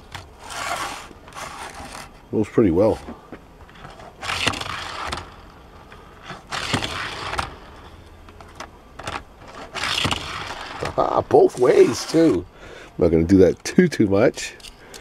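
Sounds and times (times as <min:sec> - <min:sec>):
toy car rolling on plastic track: 0:03.8 - 0:07.8, 0:09.0 - 0:12.4.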